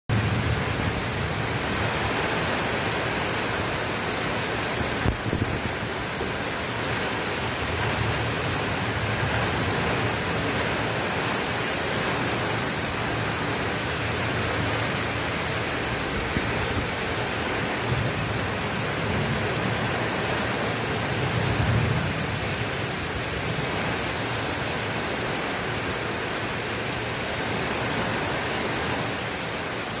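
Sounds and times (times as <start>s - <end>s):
low thunder rumbles: 0.1s - 12.4s
heavy rain pouring: 0.1s - 30.0s.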